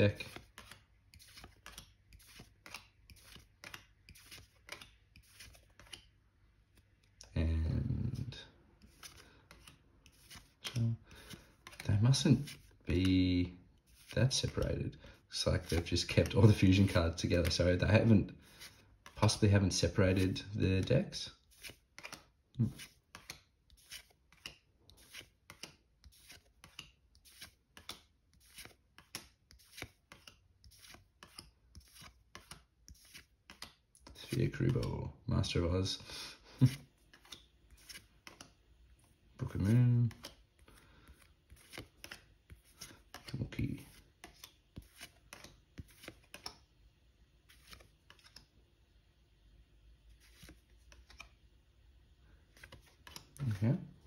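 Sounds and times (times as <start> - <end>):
trading cards swishing: 0.1 - 6.1, 8.0 - 12.8, 15.5 - 17.7, 21.4 - 34.8, 36.6 - 38.6, 39.4 - 46.6, 47.4 - 48.5, 50.1 - 51.3, 52.5 - 53.8.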